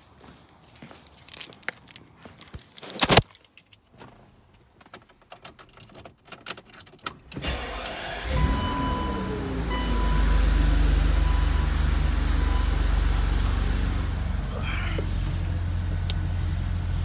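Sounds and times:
car keys jangling: 4.8 - 7.8
car engine starting and running: 5.0 - 17.0.

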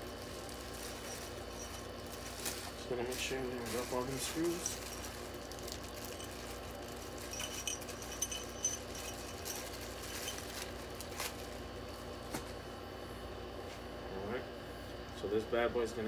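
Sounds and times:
plastic bag crinkling: 0.0 - 12.0
metal screws clinking: 4.4 - 10.8.

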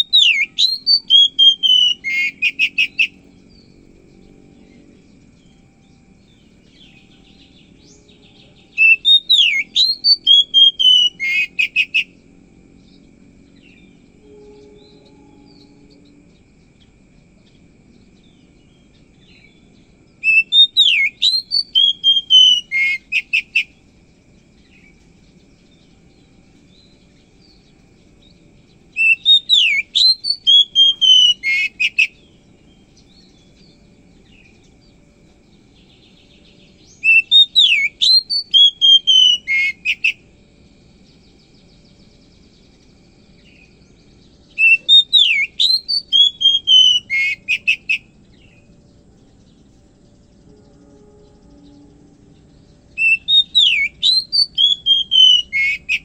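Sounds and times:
bird singing whistled phrases: 0.0 - 3.2, 6.8 - 12.2, 20.2 - 23.7, 28.9 - 32.2, 36.8 - 40.2, 44.4 - 48.7, 52.9 - 56.0.

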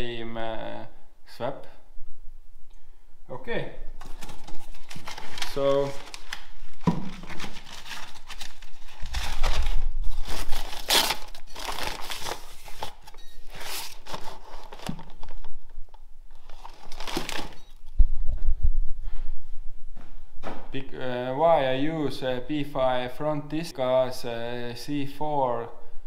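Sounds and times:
packing paper crinkling: 4.0 - 17.9.

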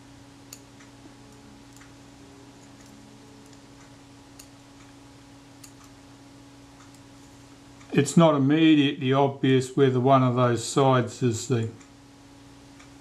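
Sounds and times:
steady low hum: 0.0 - 13.0
tweezers tapping on metal: 2.6 - 5.0.

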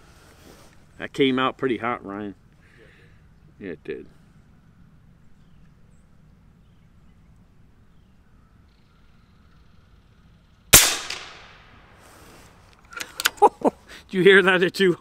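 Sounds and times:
air rifle shot: 10.7 - 12.0.

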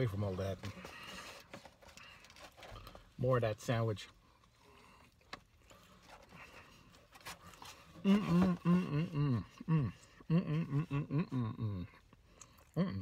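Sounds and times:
man chewing: 4.4 - 12.8
man humming with mouth full: 8.0 - 12.0, 12.7 - 13.0.

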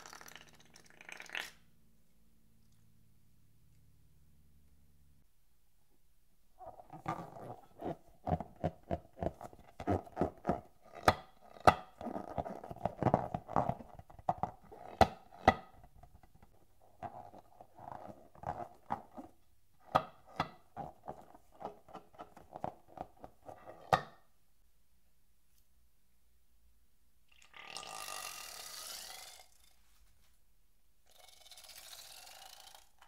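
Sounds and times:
balloon rubber squeaking: 6.6 - 16.0.

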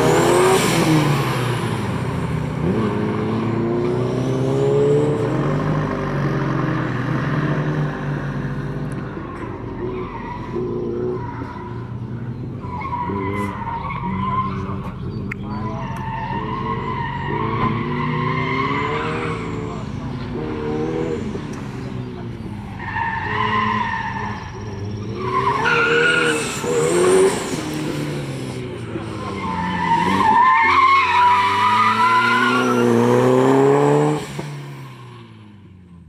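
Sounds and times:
car engine revving: 0.0 - 35.7
tires squealing: 9.0 - 35.5.

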